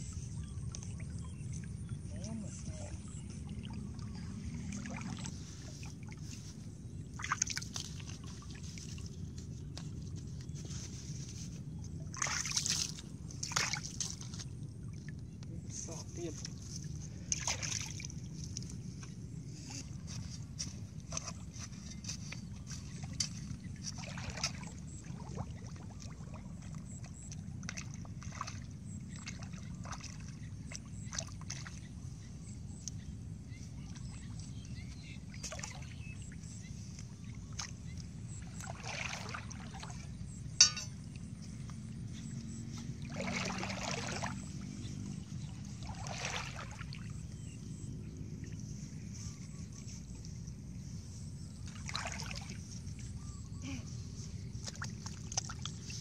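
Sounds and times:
water splashes: 0.0 - 49.8, 51.4 - 56.0
metal bar jabbing into wet mud: 40.6 - 41.0.

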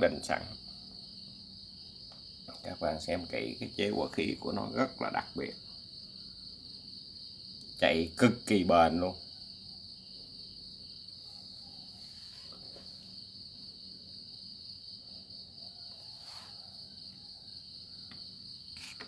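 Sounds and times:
cricket trilling: 0.0 - 19.0.

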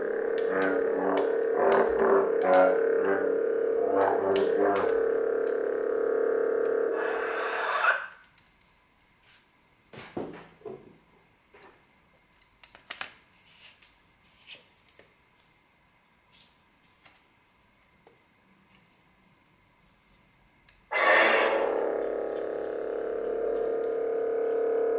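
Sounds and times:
lightsaber blade hum: 0.0 - 8.1, 20.9 - 24.9
hissing retract sound: 20.9 - 22.0.

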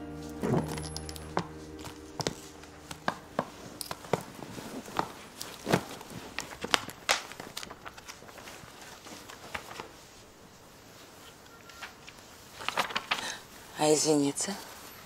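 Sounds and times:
background music: 0.0 - 5.1
footsteps clicking: 0.4 - 7.8.

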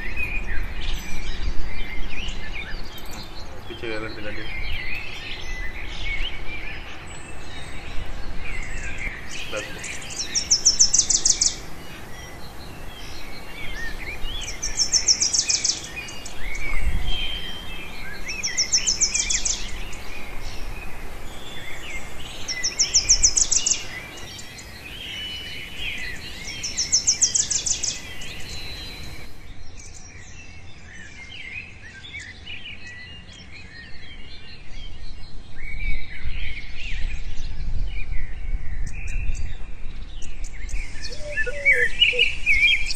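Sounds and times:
birds chirping: 0.0 - 42.9
bird high trill: 41.0 - 42.9.

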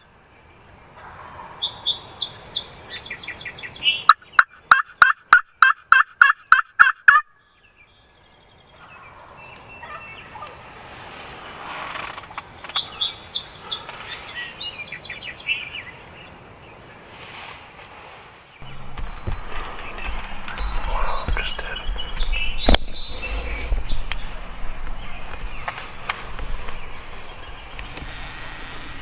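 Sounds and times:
small birds chirping: 1.6 - 4.8, 7.4 - 17.1, 18.5 - 29.0
turkey yelps: 4.4 - 7.3.

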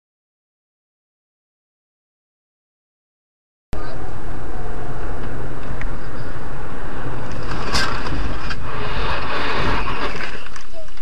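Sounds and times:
vehicle engine and road noise: 3.8 - 11.0.

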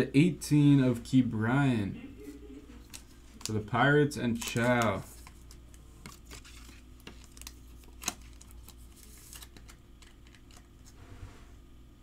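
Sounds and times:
soft card rustles: 2.2 - 11.0.

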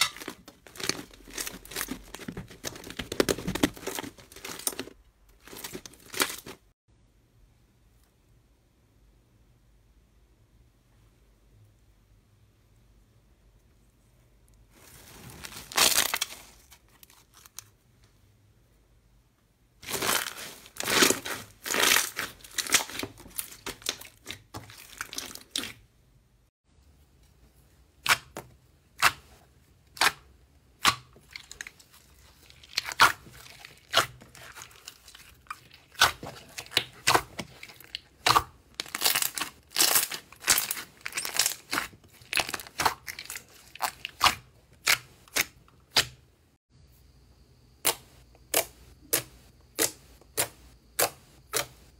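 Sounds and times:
slime crackling through mesh: 0.0 - 6.6, 19.8 - 25.7, 31.2 - 45.0
slime popping and crackling: 19.8 - 25.8, 32.5 - 46.1.

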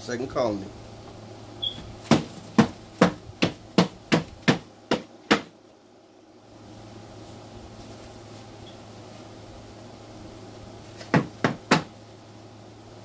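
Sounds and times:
cardboard knocking against container: 2.0 - 5.5.

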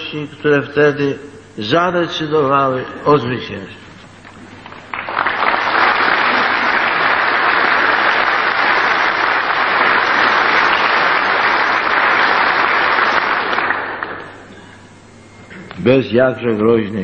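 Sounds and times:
large audience applauding: 4.6 - 14.3.

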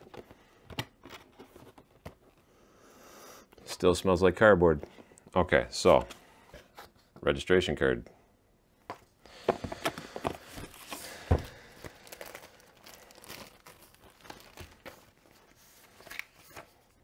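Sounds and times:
paper rustling: 10.2 - 17.0.

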